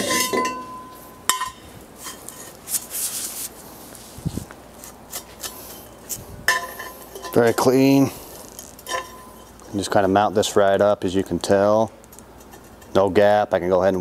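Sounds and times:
sharp metal clank ringing: 0.0s - 1.6s
metal tubing clanking: 0.0s - 2.6s, 6.5s - 10.0s.

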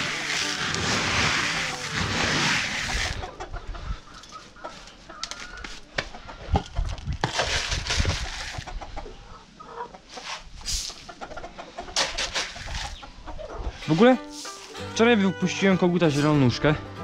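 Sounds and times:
loud rushing rustle: 0.0s - 3.3s
hens clucking: 0.0s - 14.7s.

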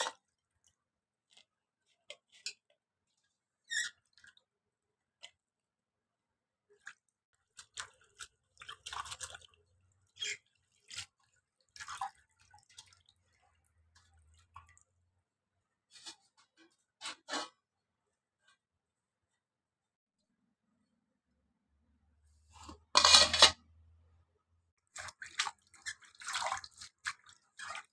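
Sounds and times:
water splashing in a steel bowl: 0.0s - 5.5s, 6.7s - 15.2s, 24.8s - 27.9s.

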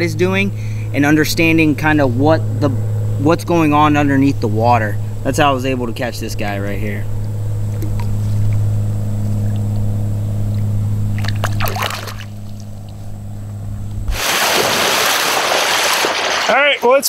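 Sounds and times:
steady low hum: 0.0s - 17.0s
water splashing and dribbling: 7.7s - 8.7s, 10.5s - 13.0s, 14.1s - 17.0s.

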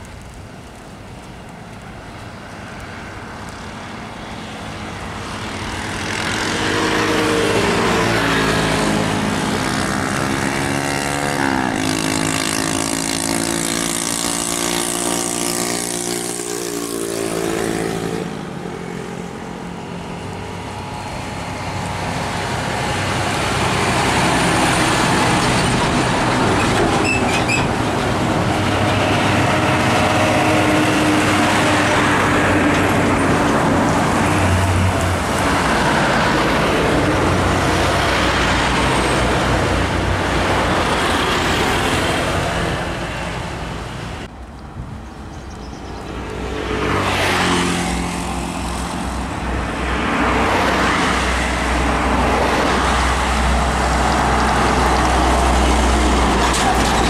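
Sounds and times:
trucks passing: 0.0s - 57.0s
motorbikes passing: 2.8s - 44.3s, 44.9s - 57.0s.

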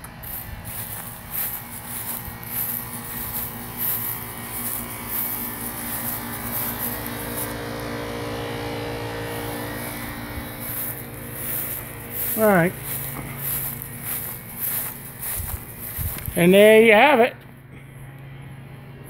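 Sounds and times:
footsteps through grass: 0.0s - 17.2s
low mechanical hum: 0.0s - 19.0s.

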